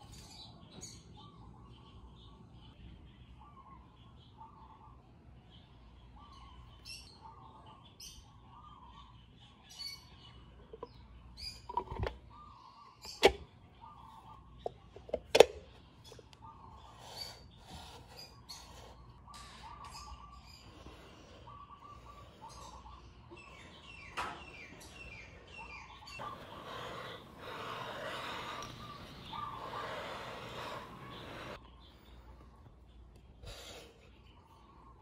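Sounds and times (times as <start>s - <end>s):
birds chirping: 0.0s - 35.0s.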